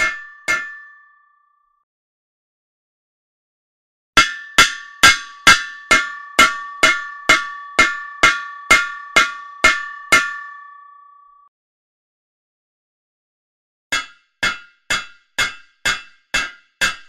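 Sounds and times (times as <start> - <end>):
hammer striking metal: 0.0 - 1.4, 4.2 - 11.4, 13.9 - 17.0.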